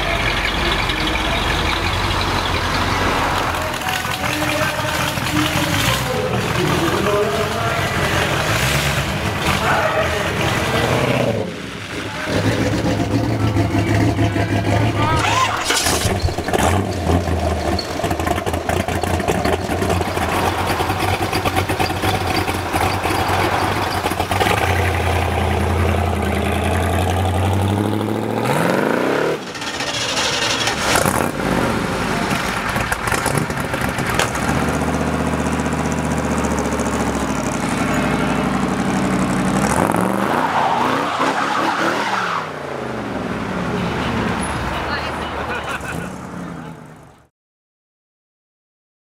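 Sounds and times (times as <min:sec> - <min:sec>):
old car engine running: 0:00.0 - 0:10.8, 0:12.1 - 0:28.2, 0:29.3 - 0:40.1
hot rod engine pulling away: 0:00.0 - 0:44.6.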